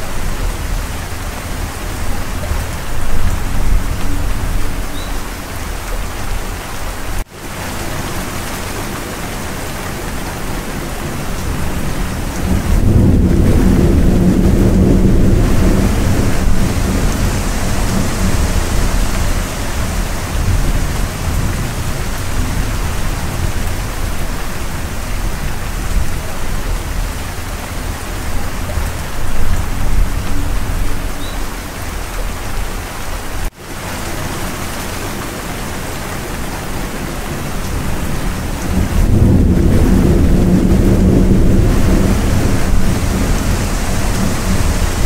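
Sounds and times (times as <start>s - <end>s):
low rumble of thunder: 0.0s - 6.5s, 10.1s - 31.5s, 37.2s - 45.0s
steady rain: 0.0s - 45.0s.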